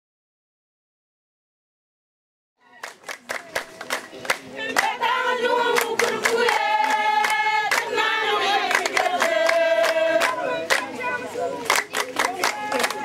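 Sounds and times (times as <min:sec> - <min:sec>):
sharp claps: 0:02.8 - 0:05.0, 0:05.7 - 0:08.0, 0:08.6 - 0:10.9, 0:11.6 - 0:13.0
group of voices singing and chanting: 0:03.4 - 0:13.0.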